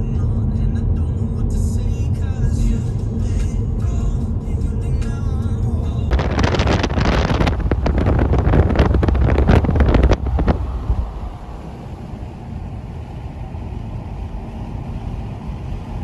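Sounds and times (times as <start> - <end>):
car road and tyre noise: 0.0 - 16.0
wind buffeting microphone: 6.1 - 14.4.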